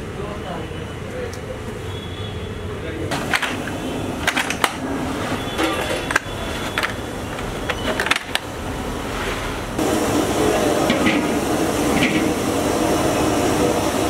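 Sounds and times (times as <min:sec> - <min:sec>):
metal vessel clinks and knocks: 0:05.5 - 0:07.0.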